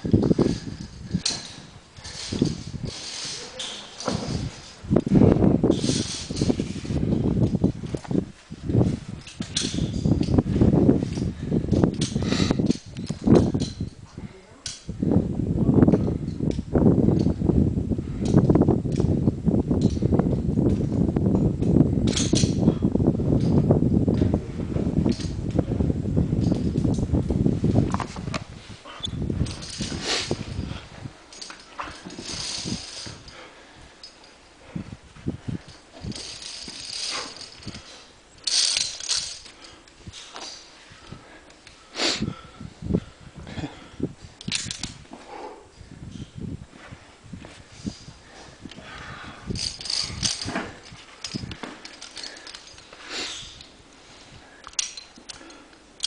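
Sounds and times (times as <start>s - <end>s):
microphone handling rumble: 0.0s - 14.3s, 14.9s - 33.4s
carabiners clinking on metal: 0.0s - 15.0s, 15.9s - 17.4s, 18.2s - 43.1s, 44.2s - 45.2s, 46.1s - 56.0s
hard breathing: 11.1s - 12.9s, 28.6s - 44.4s, 45.1s - 55.9s
person breathing: 32.9s - 35.8s, 40.8s - 44.1s, 45.1s - 45.9s, 48.1s - 50.1s, 52.1s - 55.8s.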